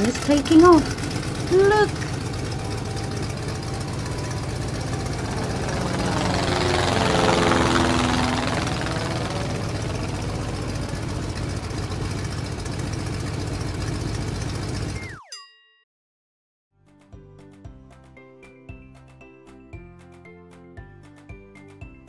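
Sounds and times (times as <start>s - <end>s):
propeller plane engine droning: 0.0s - 15.1s.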